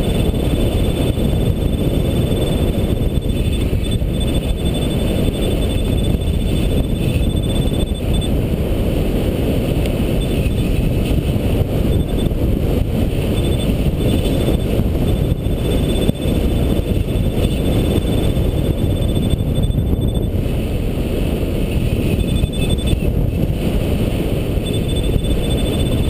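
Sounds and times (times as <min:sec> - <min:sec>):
variometer high beeps: 0:00.0 - 0:08.4, 0:10.2 - 0:10.8, 0:11.8 - 0:12.4, 0:13.2 - 0:20.4, 0:21.8 - 0:23.1, 0:24.6 - 0:26.0
wind buffeting microphone: 0:00.0 - 0:26.0.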